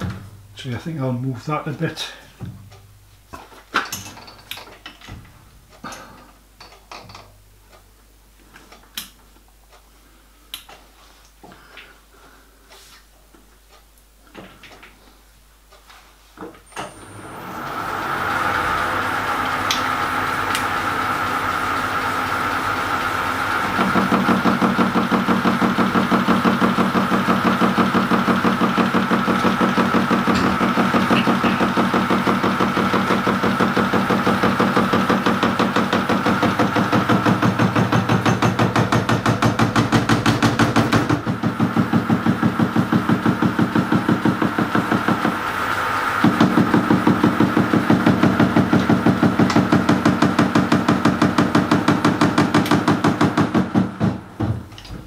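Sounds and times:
metal lathe running: 0:17.2 - 0:38.3
lathe tool knocking: 0:18.0 - 0:45.5, 0:46.2 - 0:54.9.

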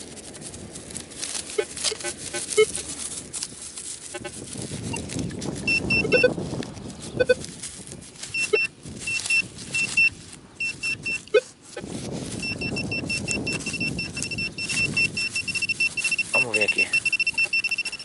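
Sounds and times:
grass rustling: 0:00.0 - 0:18.0
metal detector pinpointer beeping: 0:01.6 - 0:02.8, 0:04.1 - 0:06.4, 0:07.1 - 0:07.4, 0:08.3 - 0:11.5, 0:12.4 - 0:18.0.

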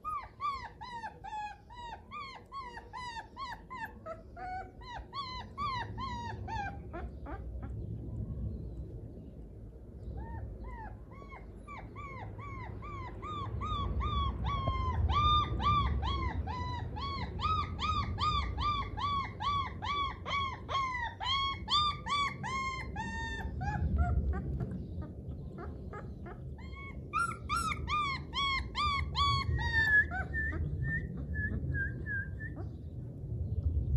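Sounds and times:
puppy whimpering and crying: 0:00.0 - 0:07.8, 0:10.2 - 0:32.8
low rumble: 0:06.4 - 0:11.7, 0:21.7 - 0:33.9.

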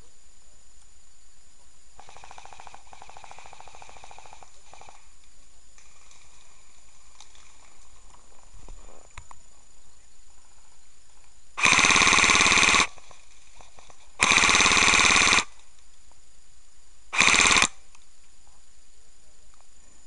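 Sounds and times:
airsoft gun full-auto bursts: 0:02.0 - 0:04.9, 0:11.6 - 0:13.1, 0:14.2 - 0:15.6, 0:17.2 - 0:17.8.

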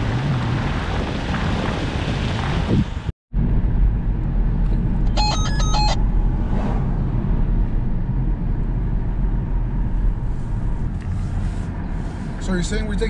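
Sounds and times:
car driving rumble: 0:00.0 - 0:13.0
electronic beeping tones: 0:05.2 - 0:06.0.

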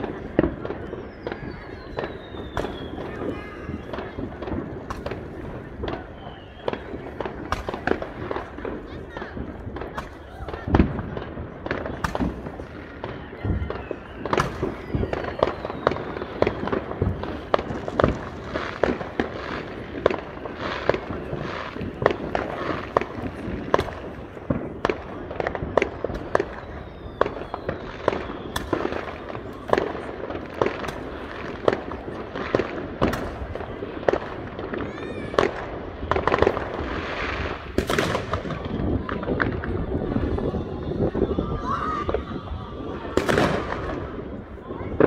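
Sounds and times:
falling firework whistle: 0:00.0 - 0:45.0
fireworks bangs: 0:00.0 - 0:45.0.

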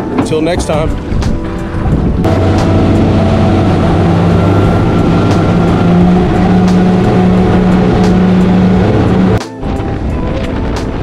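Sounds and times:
outboard motors droning: 0:00.0 - 0:11.0
rushing water from wake: 0:00.0 - 0:11.0.

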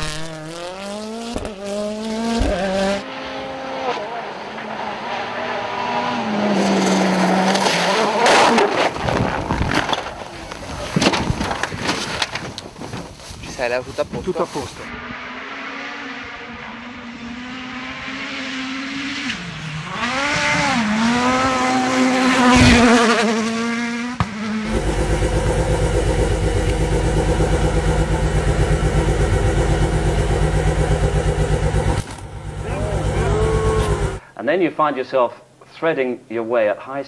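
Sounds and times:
rally car engine revving past: 0:00.0 - 0:08.9, 0:14.9 - 0:34.2
rally car engine idling: 0:24.7 - 0:34.2.

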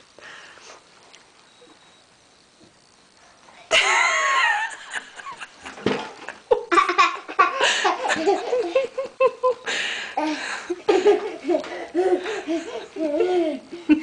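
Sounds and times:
child giggling: 0:06.5 - 0:09.6, 0:10.2 - 0:14.0.

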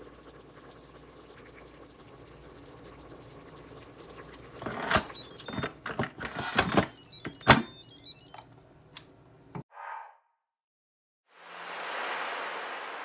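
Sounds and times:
thick gravy bubbling: 0:00.0 - 0:04.8.

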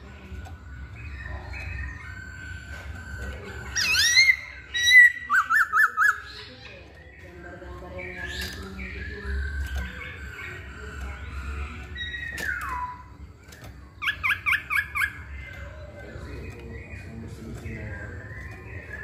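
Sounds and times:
bird singing whistled phrases: 0:08.2 - 0:13.3.

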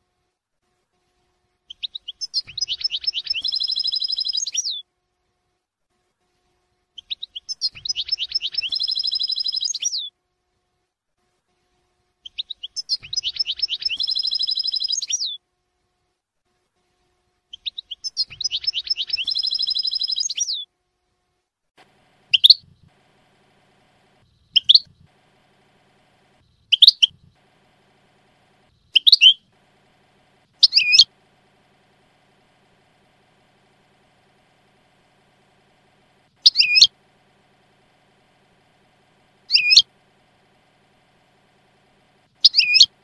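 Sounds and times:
goldfinch buzzy trills: 0:01.7 - 0:04.8, 0:07.0 - 0:10.1, 0:12.2 - 0:15.4, 0:17.5 - 0:20.7, 0:21.8 - 0:43.0
goldfinch rising call notes: 0:12.9 - 0:15.0, 0:18.2 - 0:20.6, 0:30.6 - 0:31.1, 0:36.4 - 0:36.9, 0:39.5 - 0:39.9, 0:42.4 - 0:42.9.

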